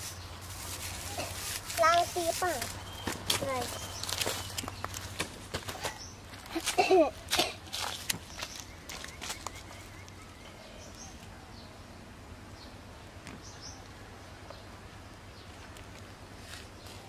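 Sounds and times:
fire crackling in dry grass: 0.0s - 5.5s.

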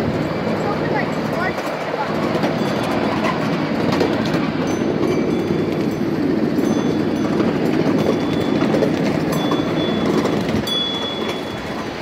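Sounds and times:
small train wheels rumbling on rails: 0.0s - 12.0s
high wheel squeal: 2.5s - 3.8s, 4.6s - 12.0s.

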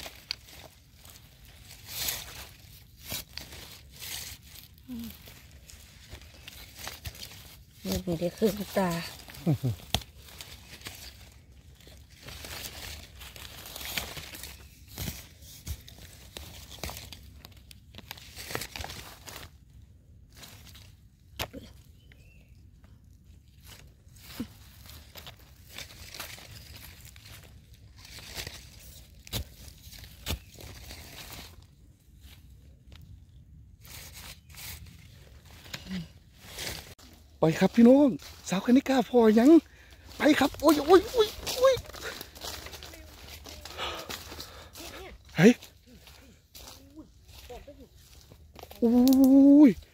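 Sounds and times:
twig snapping: 0.0s - 0.7s, 6.0s - 19.3s, 28.0s - 31.4s, 48.5s - 49.4s
crunching in dry leaves: 0.0s - 49.9s
rustling and crackling from digging: 0.0s - 49.9s.

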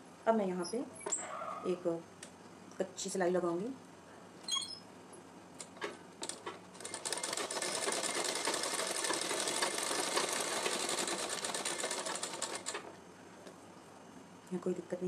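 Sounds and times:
sewing machine clicks: 5.6s - 12.9s
sewing machine stitching clatter: 5.8s - 12.9s.

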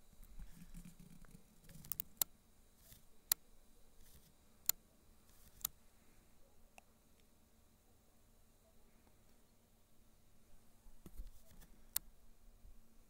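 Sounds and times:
sharp clicks: 0.2s - 3.4s, 4.0s - 5.8s.

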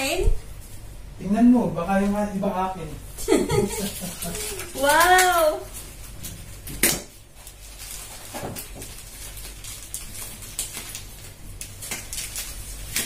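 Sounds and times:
plastic bag rustling and crinkling: 3.3s - 13.0s.

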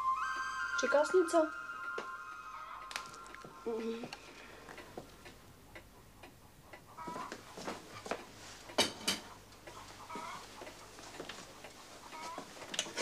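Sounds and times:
clock ticking: 2.6s - 12.9s.

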